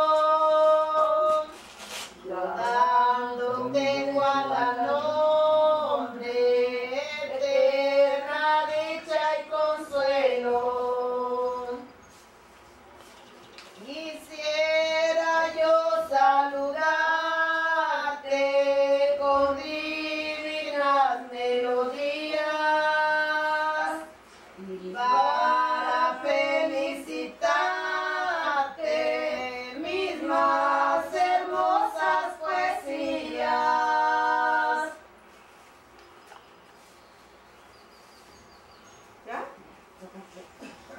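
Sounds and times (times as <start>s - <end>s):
women singing unaccompanied: 0.0s - 1.6s, 2.2s - 12.0s, 13.8s - 35.1s.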